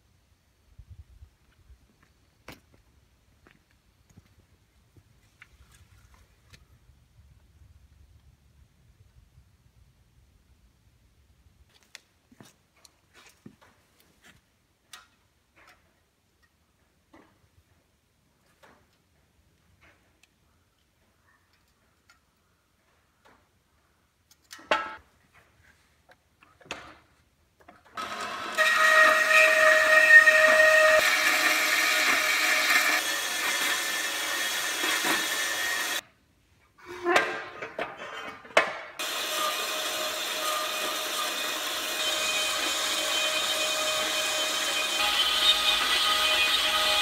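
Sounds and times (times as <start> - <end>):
band saw cutting steel: 28.0 - 36.0, 39.0 - 47.0.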